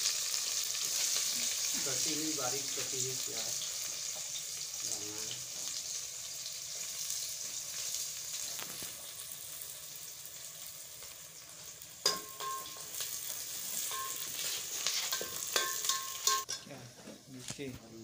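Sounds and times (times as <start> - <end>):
onions sizzling in a pot: 0.0 - 18.0
metal ladle clinking against pot: 12.0 - 12.8, 13.9 - 14.3, 15.1 - 16.7.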